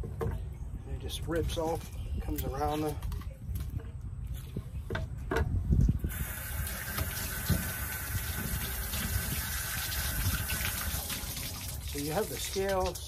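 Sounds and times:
water pouring into metal sink: 6.1 - 13.0.

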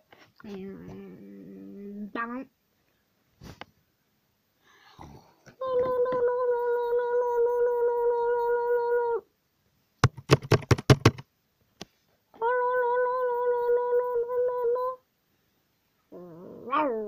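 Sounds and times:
child humming: 5.0 - 9.2, 12.4 - 15.0.

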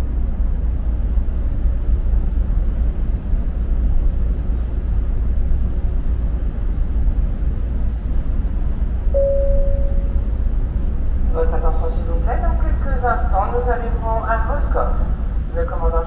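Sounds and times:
ship engines rumbling: 9.2 - 16.0.

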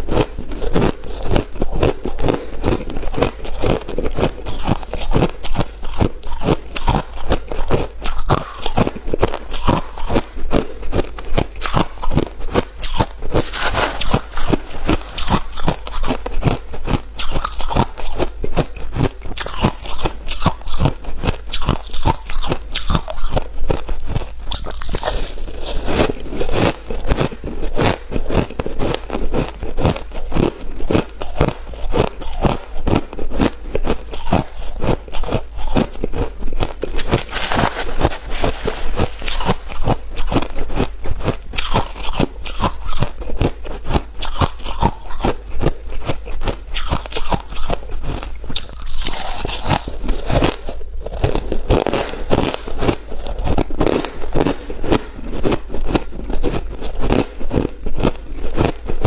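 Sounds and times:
person chewing ice: 0.0 - 59.0.

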